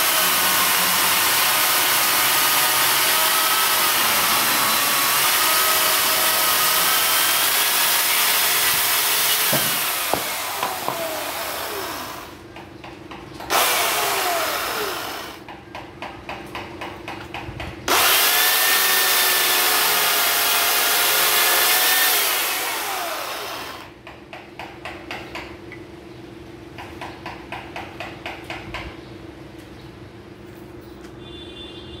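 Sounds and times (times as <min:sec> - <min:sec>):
electric chainsaw cutting wood: 0:00.0 - 0:12.4, 0:13.5 - 0:15.5, 0:17.9 - 0:24.0.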